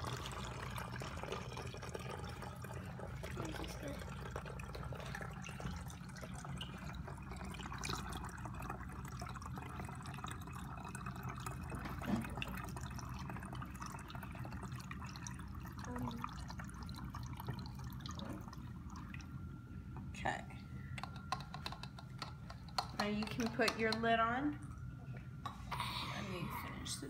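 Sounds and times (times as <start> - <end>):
liquid pouring into a bottle: 0.0 - 19.5.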